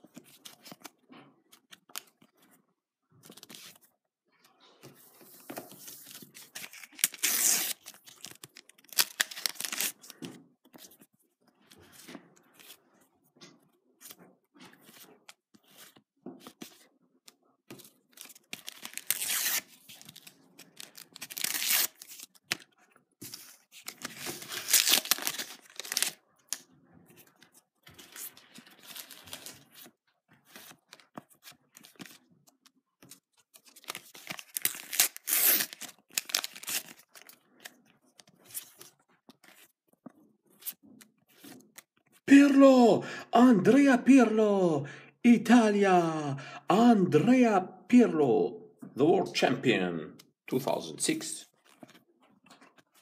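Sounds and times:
sticker packets tearing open: 6.6s - 10.0s, 18.2s - 22.3s, 24.0s - 26.2s, 33.7s - 37.4s.

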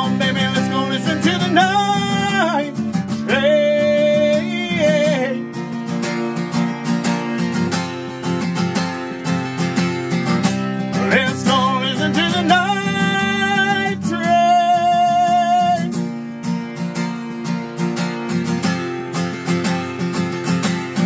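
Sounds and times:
man's wordless singing: 0.0s - 5.5s, 10.9s - 16.0s
acoustic guitar strumming: 0.0s - 21.0s.

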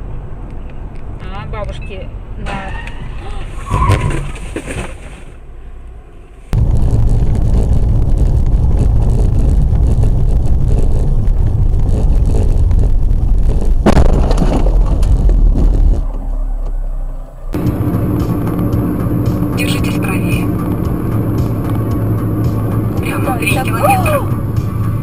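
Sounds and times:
road and wind noise: 0.0s - 25.0s
car crash impact: 13.8s - 17.5s.

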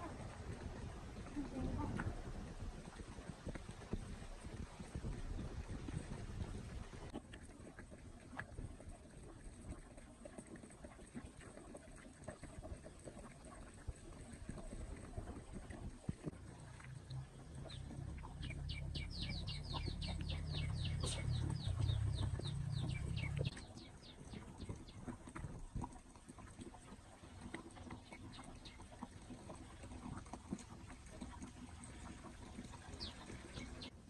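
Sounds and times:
low rumble: 17.1s - 23.6s
ducklings peeping: 17.7s - 24.2s.

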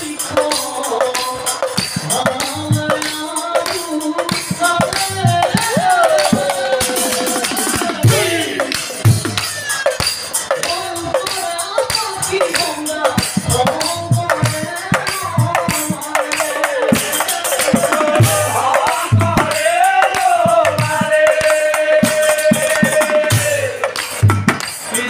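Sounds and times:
men singing a devotional chant: 0.0s - 25.0s
large drums beaten with sticks: 4.3s - 9.6s, 16.8s - 24.6s.

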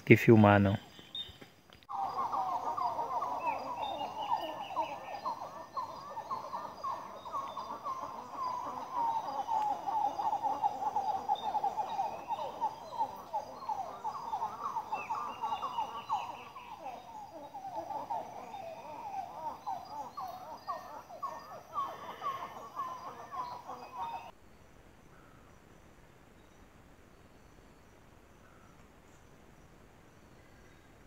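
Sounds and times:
chatter of animal calls: 1.9s - 24.3s
higher animal calls: 1.9s - 24.3s.

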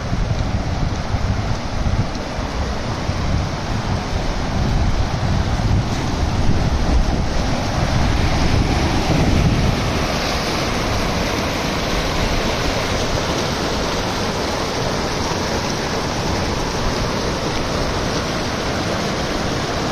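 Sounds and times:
stream rushing over rocks: 0.0s - 19.9s.

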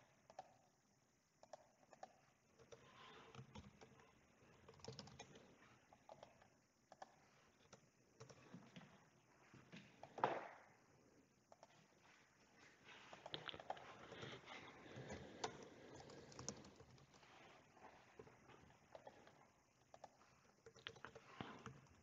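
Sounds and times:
typing on computer keyboard: 1.4s - 8.6s, 13.3s - 17.3s, 18.9s - 22.0s.

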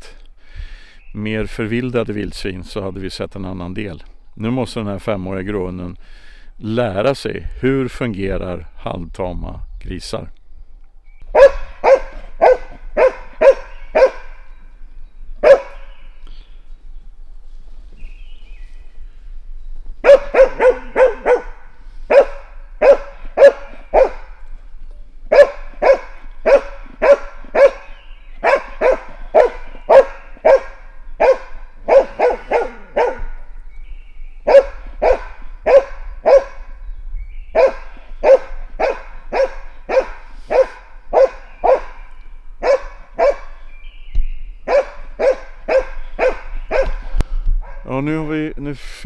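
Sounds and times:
dog barking: 11.3s - 14.4s, 15.4s - 15.8s, 20.0s - 24.3s, 25.3s - 33.4s, 34.4s - 36.7s, 37.5s - 42.0s, 42.6s - 43.6s, 44.7s - 47.0s, 47.6s - 47.9s.

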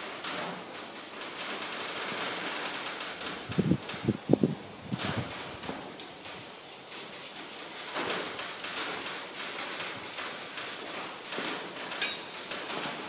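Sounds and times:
metal tool clicking and tapping: 11.9s - 12.4s
sharp metal clink: 12.0s - 12.4s.

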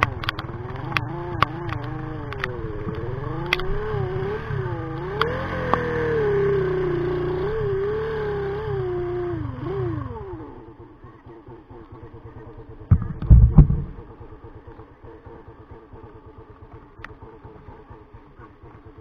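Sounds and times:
motorcycle engine idling: 9.6s - 19.0s
loud sudden thumps: 12.9s - 14.1s.

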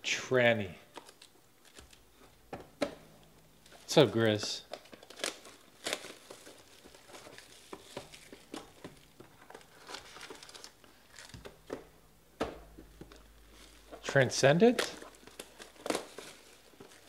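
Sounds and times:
cellophane crinkling: 0.9s - 2.3s, 3.6s - 11.7s, 13.1s - 17.0s.

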